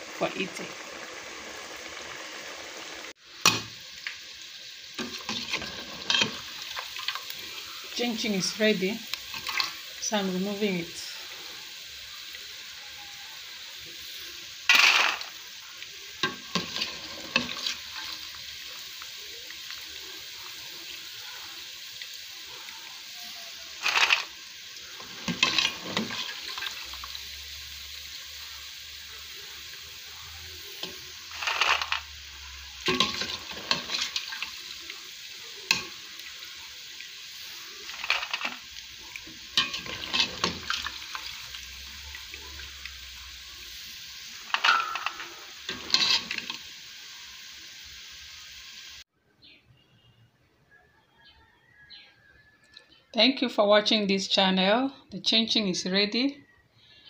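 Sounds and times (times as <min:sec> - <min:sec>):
dough sizzling in hot oil: 0:00.0 - 0:49.1
metal spoon scraping a pot: 0:25.0 - 0:26.4, 0:32.9 - 0:34.4, 0:39.6 - 0:40.9, 0:44.6 - 0:46.6.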